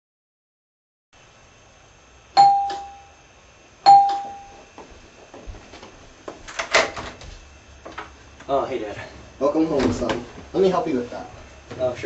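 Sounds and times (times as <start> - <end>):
doorbell chime: 2.4 - 3.2, 3.9 - 4.6.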